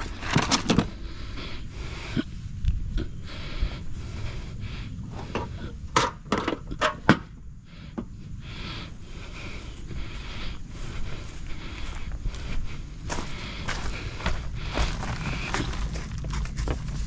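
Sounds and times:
steady low rumble: 0:00.0 - 0:17.0
plastic pipe knocking and scraping: 0:05.3 - 0:07.3.

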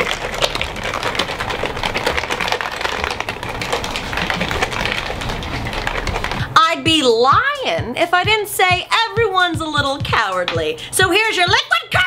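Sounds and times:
cocktail shaker rattling: 0:00.0 - 0:06.6.

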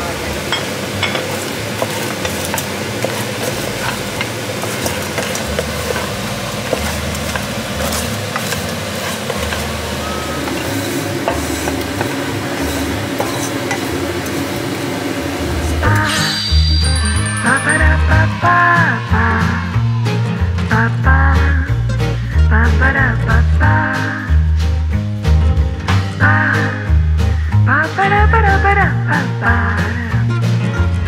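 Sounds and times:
chicken wings sizzling in a wok: 0:00.0 - 0:25.3
music: 0:00.0 - 0:31.0
spatula scraping a pan: 0:01.1 - 0:14.5.

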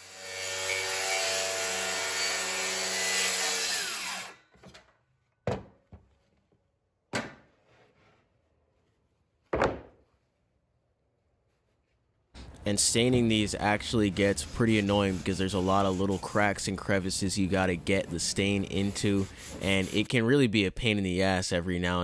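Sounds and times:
circular saw cutting: 0:00.0 - 0:04.4, 0:13.1 - 0:20.1
saw blade winding down: 0:00.0 - 0:04.4.

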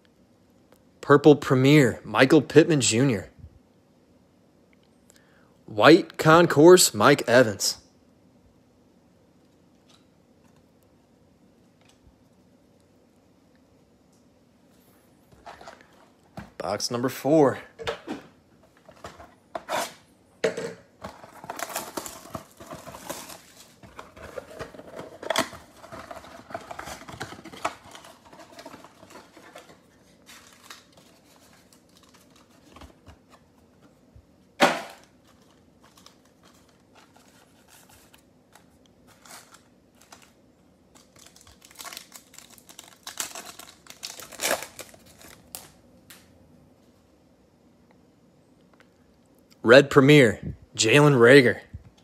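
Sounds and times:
plastic wrap and cardboard tearing: 0:21.0 - 0:33.1, 0:39.0 - 0:45.8
foil pack crinkling: 0:21.0 - 0:33.6, 0:34.8 - 0:46.2.

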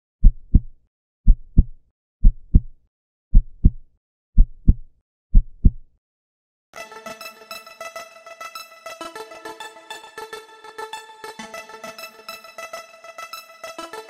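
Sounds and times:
heartbeat thumps: 0:00.2 - 0:05.9
music: 0:06.8 - 0:14.0.

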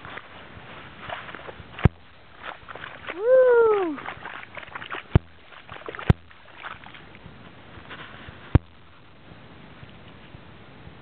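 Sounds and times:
snowshoe steps crunching in slush: 0:00.0 - 0:08.5.

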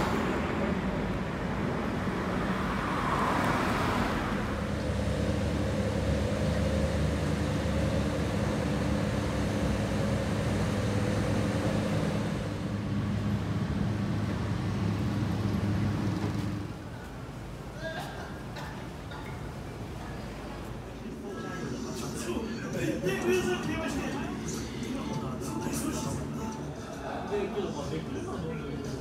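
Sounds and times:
car passing by: 0:00.0 - 0:16.9
low engine hum of traffic: 0:00.0 - 0:29.0.

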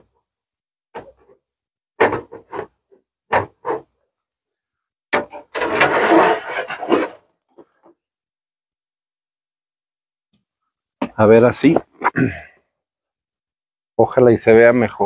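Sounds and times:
rustling and scraping: 0:01.0 - 0:04.0, 0:05.2 - 0:08.0.

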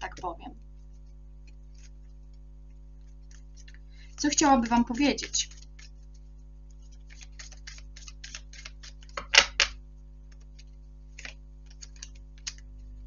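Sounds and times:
cards clicking and flicking: 0:03.2 - 0:06.2, 0:06.8 - 0:12.8
cards snapping: 0:07.0 - 0:12.7.

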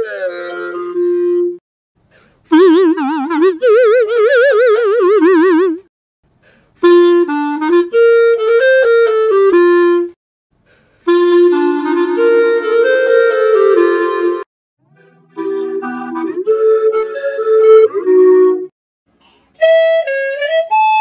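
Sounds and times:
clarinet with electronic voice effect: 0:00.0 - 0:01.6, 0:02.5 - 0:05.8, 0:11.1 - 0:18.7.

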